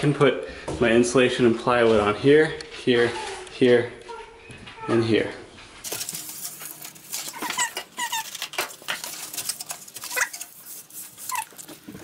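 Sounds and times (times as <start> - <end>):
cardboard rustling and scraping: 5.8 - 12.0
short high squeaks: 7.2 - 8.6, 10.0 - 10.5, 11.2 - 11.7.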